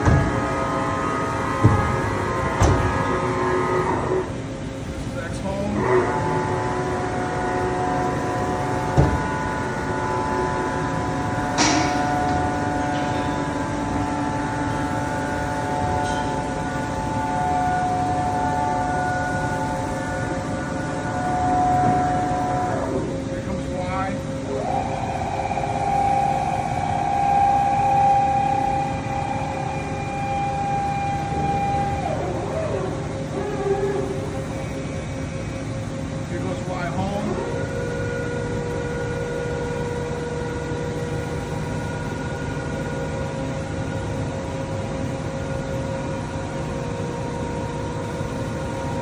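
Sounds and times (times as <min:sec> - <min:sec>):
machine knock: 0:00.0 - 0:00.5, 0:01.6 - 0:03.1
machine hum with steady tones: 0:00.0 - 0:49.0.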